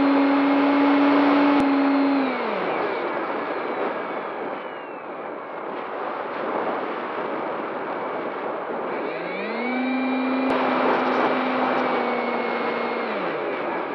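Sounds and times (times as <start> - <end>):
electric motor whine: 0.0 - 5.1, 8.8 - 13.9.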